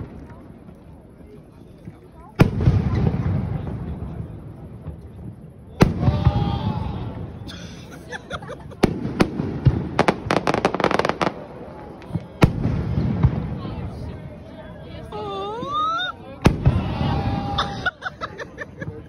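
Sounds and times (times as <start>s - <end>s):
firework sharp cracks: 2.3s - 5.2s, 5.8s - 7.4s, 8.7s - 14.1s, 16.4s - 17.1s
firework booms: 2.3s - 7.5s, 8.7s - 14.2s, 16.4s - 17.5s.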